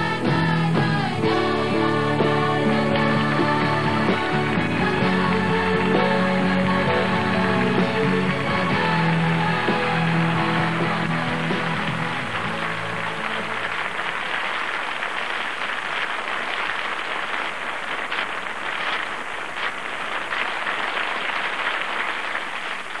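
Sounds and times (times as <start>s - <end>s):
song ending: 0.0s - 13.9s
studio audience applauding: 1.3s - 23.0s.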